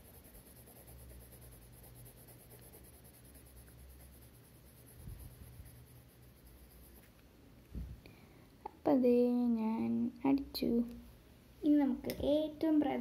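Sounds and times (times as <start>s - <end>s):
pencil scratching on paper: 0.0s - 7.2s
low steady hum: 0.0s - 13.0s.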